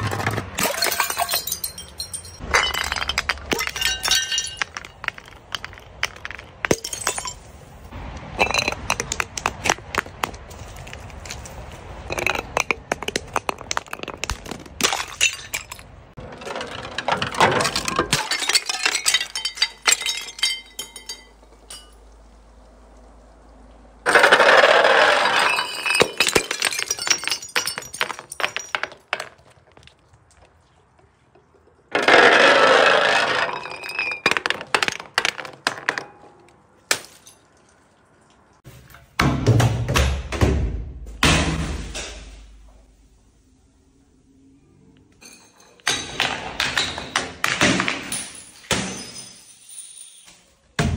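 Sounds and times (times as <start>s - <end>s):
bottles knocking down stone stairs: 0.0s - 7.6s, 8.3s - 22.0s, 24.1s - 30.0s, 31.9s - 37.6s, 45.2s - 50.9s
glass crunching and breaking: 0.0s - 7.6s, 8.4s - 22.1s, 24.1s - 30.0s, 32.0s - 37.7s.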